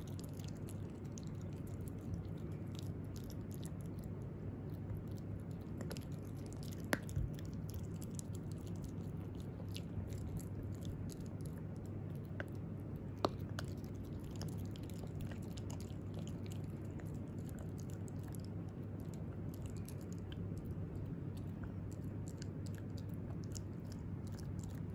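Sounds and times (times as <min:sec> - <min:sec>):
puppy chewing wetly: 0:00.0 - 0:24.9
chew stick cracking: 0:04.8 - 0:11.6.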